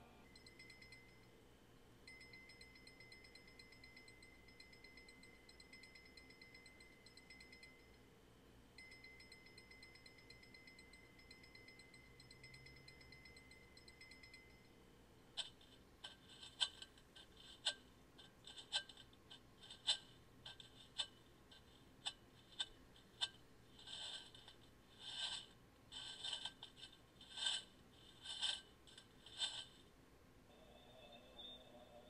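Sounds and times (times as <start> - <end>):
sharp clicks and ticks: 15.4 - 29.8.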